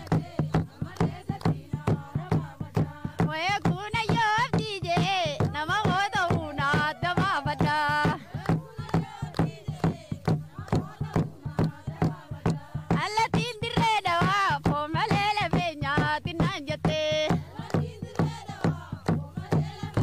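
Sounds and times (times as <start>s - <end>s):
hand clapping: 0.0s - 2.9s, 5.4s - 12.6s, 17.3s - 20.0s
women singing: 0.0s - 20.0s
high ornamented singing voice: 4.9s - 8.2s.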